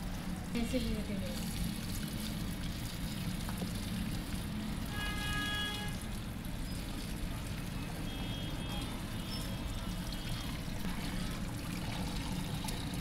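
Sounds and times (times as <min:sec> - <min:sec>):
tap water splashing into bowl: 0:01.4 - 0:05.0.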